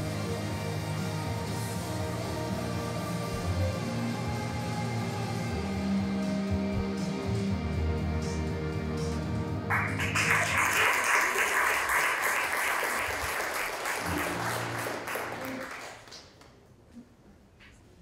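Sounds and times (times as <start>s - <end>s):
music: 0.0s - 16.2s
audience applauding: 9.7s - 16.6s.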